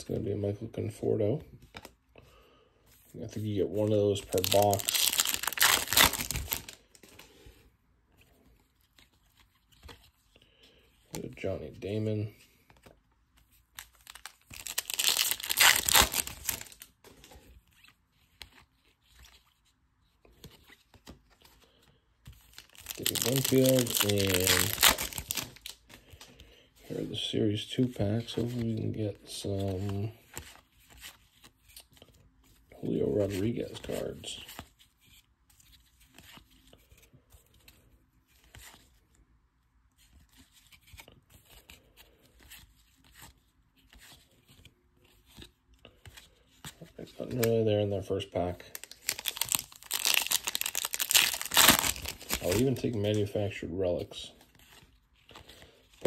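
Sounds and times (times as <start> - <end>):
foil wrapper crinkling: 4.2 - 7.0, 13.8 - 16.9, 22.5 - 26.2, 48.6 - 53.3
cards clicking and scraping: 20.2 - 26.5.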